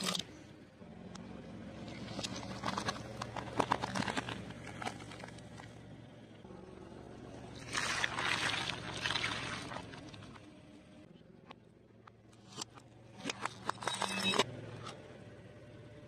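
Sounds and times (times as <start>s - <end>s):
tyre crunching small objects: 2.0s - 5.6s.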